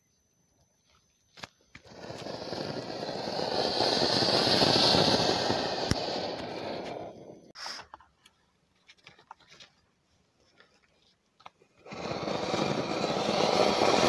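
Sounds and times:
firework hissing and crackling: 1.7s - 7.8s, 11.6s - 14.0s.

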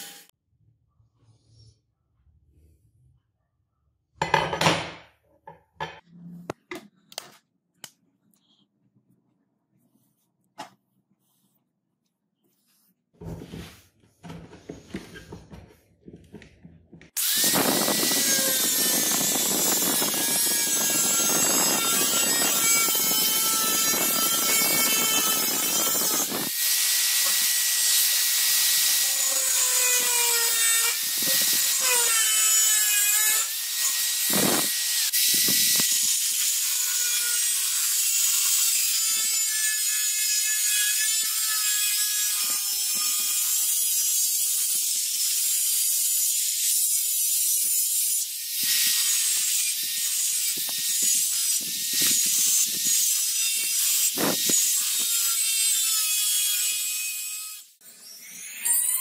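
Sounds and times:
angle grinder cutting steel: 0.0s - 0.3s, 17.2s - 59.0s.

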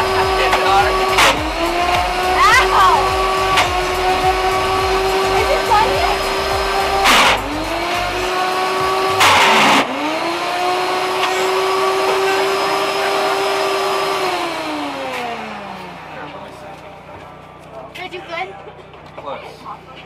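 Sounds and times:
blender motor churning: 0.0s - 15.7s.

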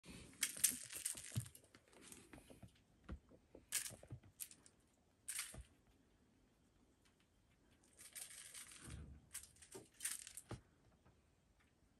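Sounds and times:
crinkly rustling: 0.3s - 2.5s, 7.7s - 10.6s.

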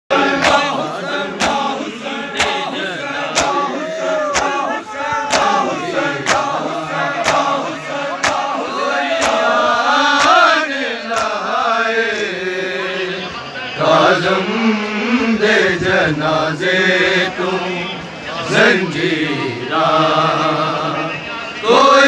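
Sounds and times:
men chanting together: 0.1s - 22.0s
hands slapping bare chests: 1.4s - 1.7s, 2.4s - 2.7s, 3.3s - 3.7s, 4.3s - 4.6s, 5.3s - 7.6s, 8.2s - 8.5s, 9.2s - 9.5s, 11.1s - 11.4s.

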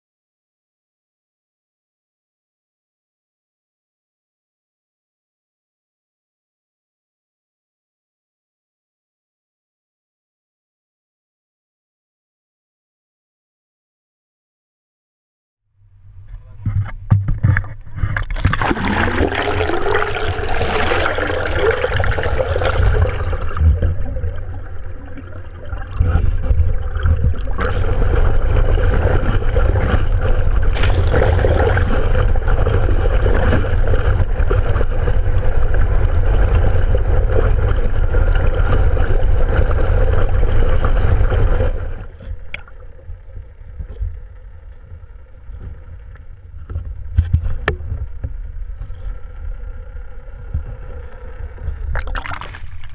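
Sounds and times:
boat motor rumbling underwater: 15.8s - 52.9s
faint steady hum: 15.8s - 52.9s.

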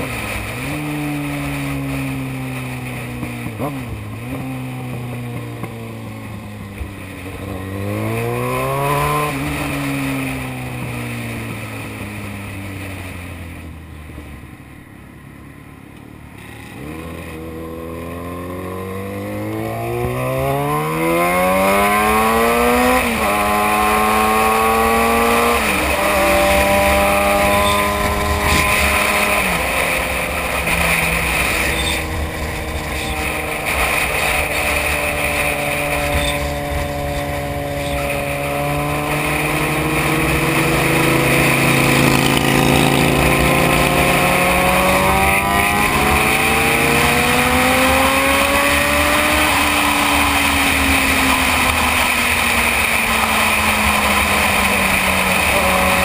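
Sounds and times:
motorcycle engine revving: 0.0s - 56.0s
wind rush on microphone: 22.2s - 56.0s.

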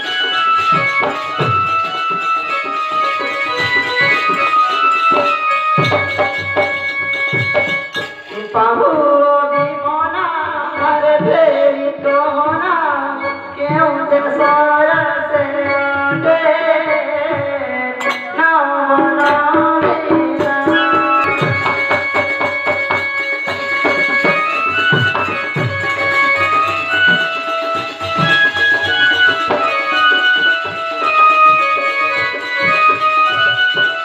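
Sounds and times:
melodic instrument playing: 0.0s - 8.7s, 20.6s - 34.0s
person singing: 8.3s - 21.6s.

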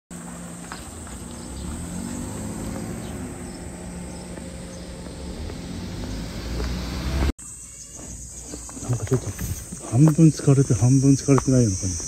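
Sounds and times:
motorcycle engine running: 0.2s - 7.3s.

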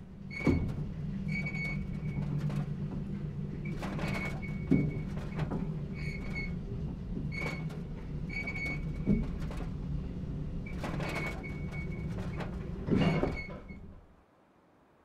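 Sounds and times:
mechanical hum: 0.0s - 15.0s
short squeaks: 0.3s - 2.6s, 3.6s - 6.6s, 7.3s - 9.5s, 10.7s - 13.9s.

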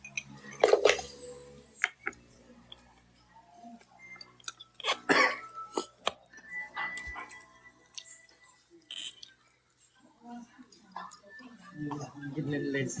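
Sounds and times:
utensils clinking against plate: 0.0s - 1.3s.

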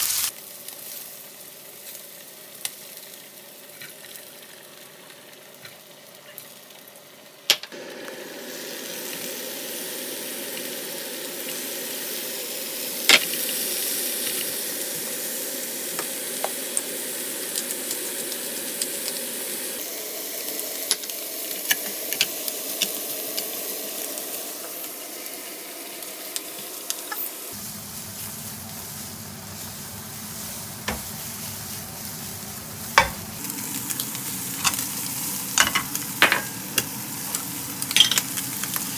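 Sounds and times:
food sizzling in pan: 0.0s - 38.9s
utensil tapping pan: 30.9s - 31.2s, 33.0s - 33.3s.

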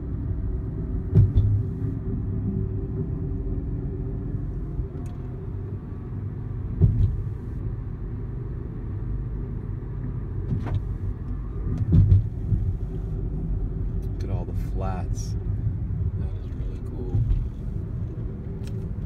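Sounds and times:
car road noise rumble: 0.0s - 19.0s
loud thumps: 1.0s - 1.8s, 6.7s - 7.4s, 11.7s - 12.8s.

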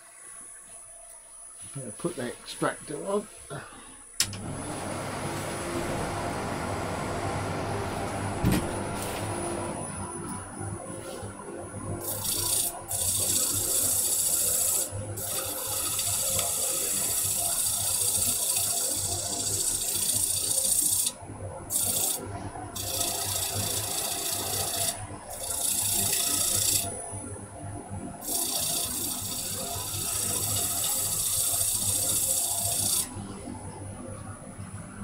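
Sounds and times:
lathe and dust extractor hum: 3.0s - 21.1s, 21.7s - 27.0s, 28.2s - 33.5s.

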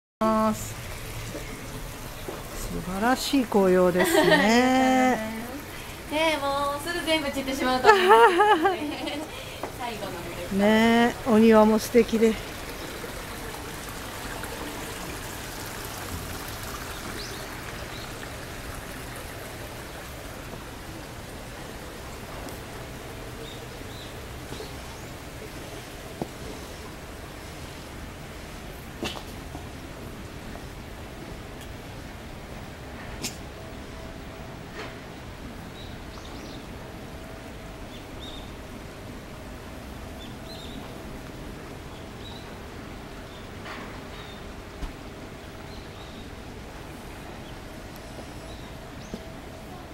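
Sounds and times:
outdoor background hiss: 0.2s - 49.9s
stream flowing over rocks: 0.7s - 27.3s.

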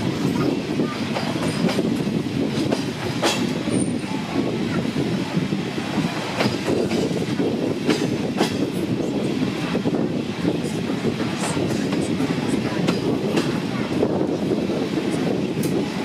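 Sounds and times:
train rumbling on track: 0.0s - 16.0s
train wheel clicks: 1.1s - 3.9s, 6.2s - 8.8s.

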